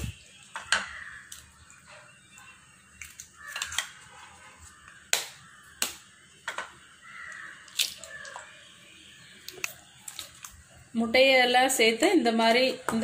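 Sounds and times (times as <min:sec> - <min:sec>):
eggs cracked on steel bowl: 0:03.0 - 0:04.0, 0:04.9 - 0:08.5.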